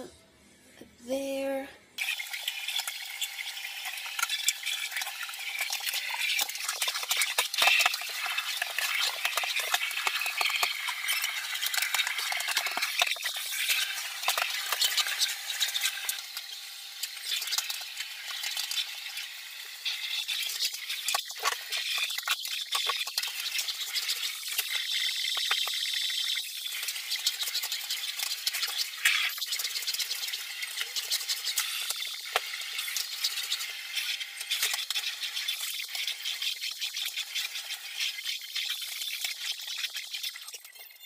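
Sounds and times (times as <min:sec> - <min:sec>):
grit crackling in hose: 0:02.0 - 0:18.9.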